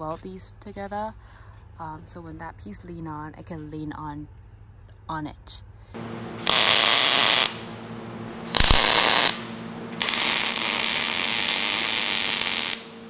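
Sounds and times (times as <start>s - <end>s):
steady low hum: 0.0s - 13.0s
welder arc crackling and sizzling: 6.0s - 13.0s.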